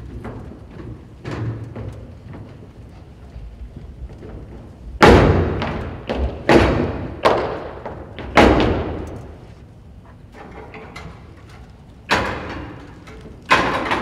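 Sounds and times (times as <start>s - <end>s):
boots stamping on hollow riser: 0.0s - 9.5s.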